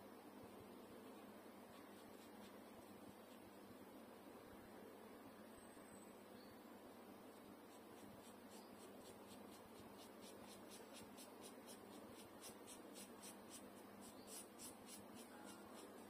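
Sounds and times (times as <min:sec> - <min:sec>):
paintbrush scratching on paper: 0:01.0 - 0:03.7, 0:07.3 - 0:16.0.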